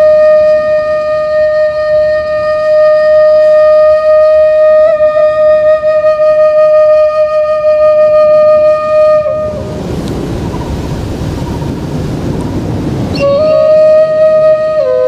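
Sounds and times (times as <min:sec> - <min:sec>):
bamboo flute long note: 0:00.0 - 0:09.9, 0:13.1 - 0:15.0
small waves on shore: 0:08.7 - 0:14.5.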